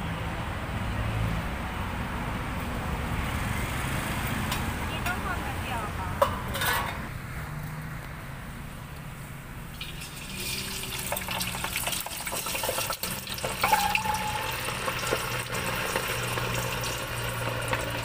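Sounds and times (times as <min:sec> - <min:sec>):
sausages deep-frying in oil: 0:09.7 - 0:18.0.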